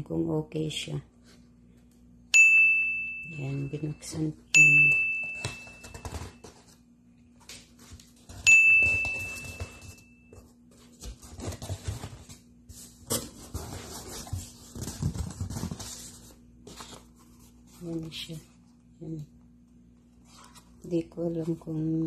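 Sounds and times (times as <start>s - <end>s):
bright bell-like ding: 2.4s - 6.1s, 8.4s - 10.3s
cardboard rustling and scraping: 5.2s - 6.8s, 7.4s - 18.6s, 20.2s - 21.6s.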